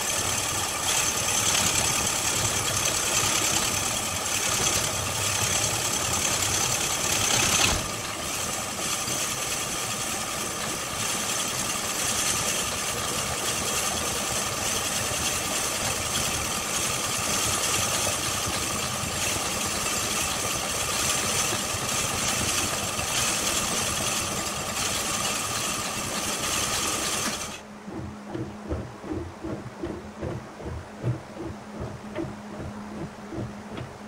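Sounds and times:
boring bar grinding into wood: 0:00.0 - 0:09.8, 0:15.7 - 0:27.6
low rhythmic thumping: 0:27.6 - 0:34.0.

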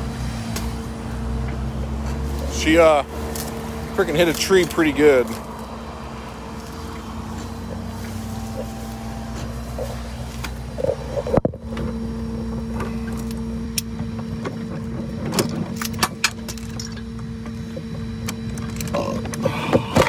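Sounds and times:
vehicle engine idling: 0:00.0 - 0:20.0.

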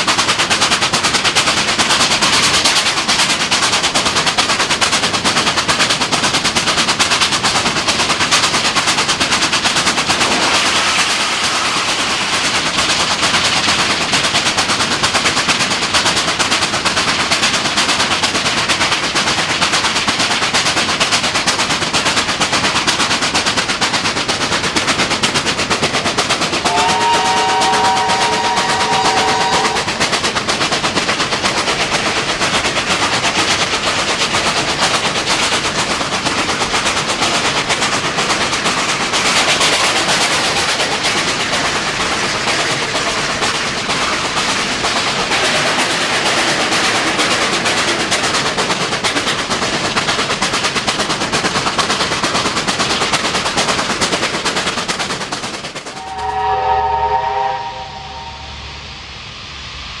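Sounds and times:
steam locomotive exhaust beats: 0:00.0 - 1:00.0
wheel and rail noise: 0:00.0 - 1:00.0
steam whistle chord: 0:26.6 - 0:30.0, 0:55.9 - 1:00.0
low rumble: 0:55.9 - 1:00.0.

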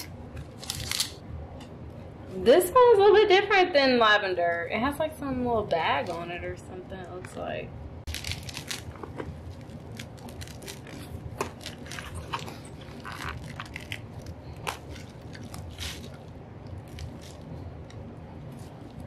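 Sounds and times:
roots and soil crunching: 0:08.1 - 0:17.5.

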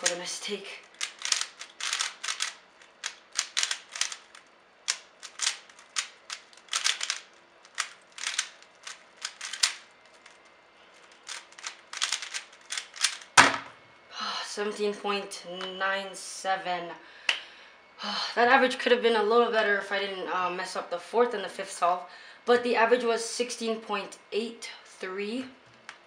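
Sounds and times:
puzzle cube clacking turns: 0:00.0 - 0:13.6.

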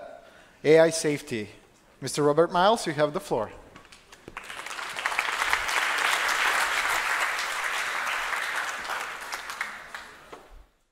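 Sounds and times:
audience applauding: 0:04.3 - 0:10.5.

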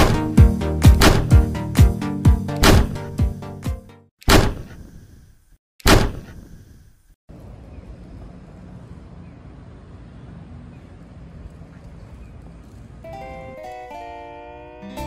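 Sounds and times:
sharp impact sound effect: 0:02.6 - 0:03.0
street noise: 0:07.3 - 0:15.0.

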